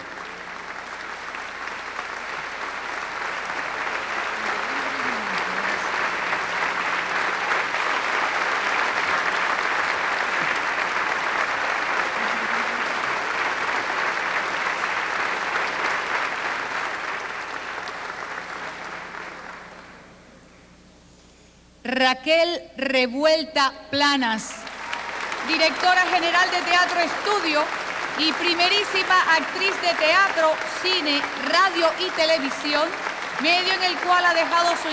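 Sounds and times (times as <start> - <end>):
audience applauding: 0.0 - 20.0, 24.6 - 34.9.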